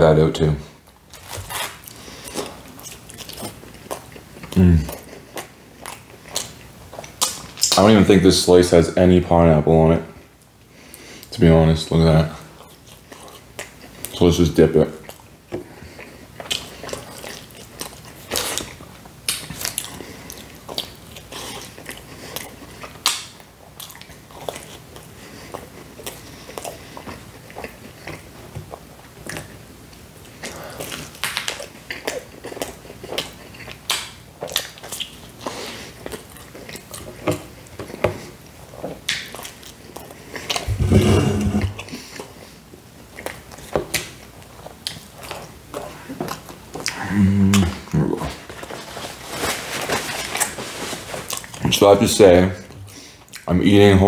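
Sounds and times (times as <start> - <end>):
wet chewing with mouth clicks: 0.8 - 7.9, 12.4 - 14.2, 14.9 - 40.8, 41.7 - 48.8, 52.8 - 53.5.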